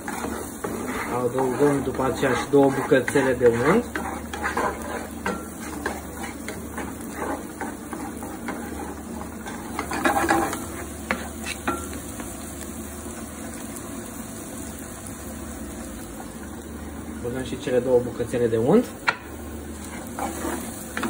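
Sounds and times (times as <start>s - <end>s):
wooden spatula scraping pan: 0.0s - 11.9s, 19.8s - 21.0s
food sizzling: 0.0s - 21.0s.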